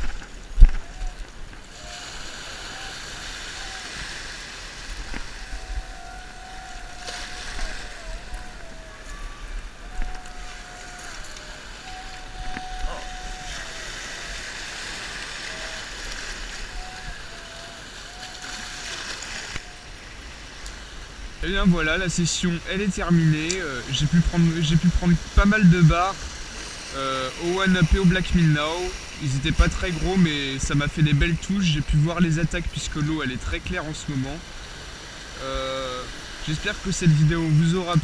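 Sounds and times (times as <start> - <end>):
waves washing over rocks: 0.0 - 38.0
wind rumbling on microphone: 0.0 - 38.0
thin whistle-like tone: 5.4 - 14.5, 15.2 - 19.0.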